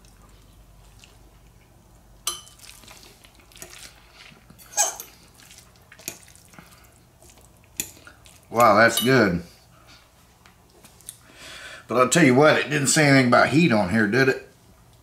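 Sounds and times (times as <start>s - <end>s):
utensil clinking against bowl: 7.8s - 9.4s.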